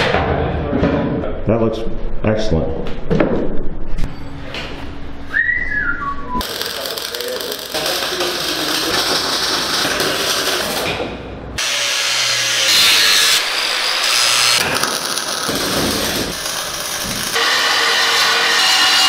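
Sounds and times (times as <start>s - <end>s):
workshop noise: 2.8s - 19.0s
angle grinder cutting steel: 6.4s - 11.0s, 11.6s - 19.0s
welding crackling: 6.4s - 19.0s.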